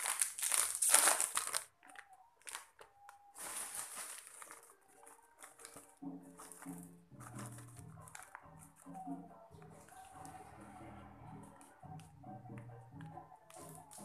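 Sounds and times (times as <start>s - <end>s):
plastic packet crinkling: 0.0s - 8.9s
wrapper rustling: 0.0s - 8.9s.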